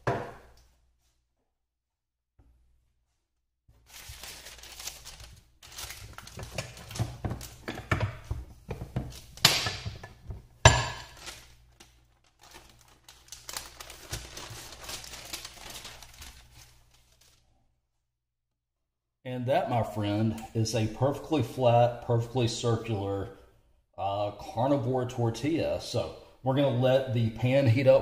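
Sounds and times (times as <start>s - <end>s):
parchment paper crinkling: 3.7s - 7.6s, 11.0s - 17.6s.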